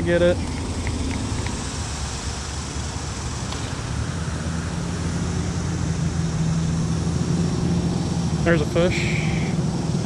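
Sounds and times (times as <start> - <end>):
low hum: 0.0 - 10.0
road traffic rumble: 0.0 - 10.0.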